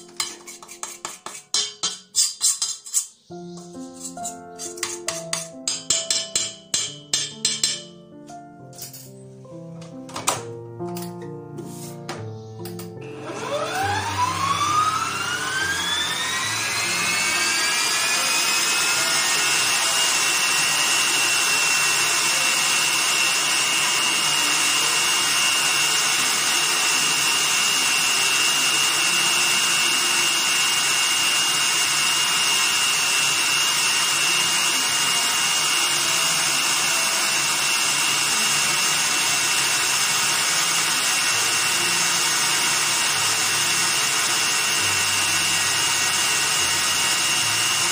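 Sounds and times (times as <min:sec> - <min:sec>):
wire whisk turning in steel bowl: 0:00.0 - 0:07.8
stand mixer motor whine: 0:13.0 - 0:47.9.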